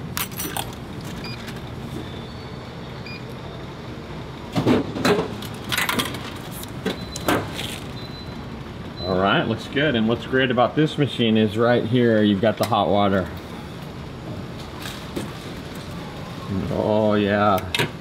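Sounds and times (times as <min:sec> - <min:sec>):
vending machine clunks: 0:04.5 - 0:07.9.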